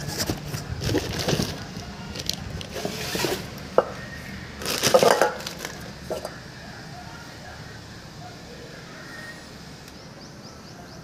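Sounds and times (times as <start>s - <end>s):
cardboard rustling: 0.0s - 3.5s
plastic wrap crinkling: 0.0s - 3.5s, 4.6s - 6.3s
pot set down on floor: 4.9s - 6.4s.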